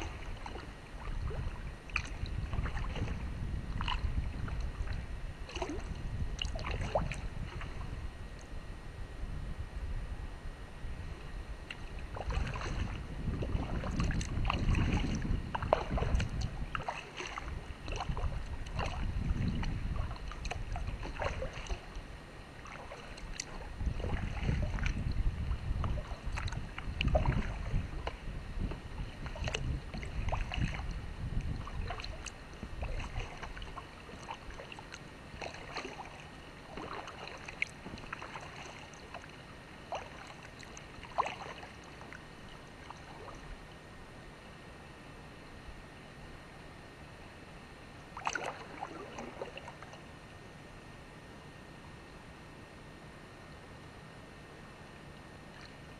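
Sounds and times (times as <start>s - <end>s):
paddle splashing water: 0.0s - 8.6s, 11.6s - 43.8s, 48.0s - 50.2s, 55.2s - 55.9s.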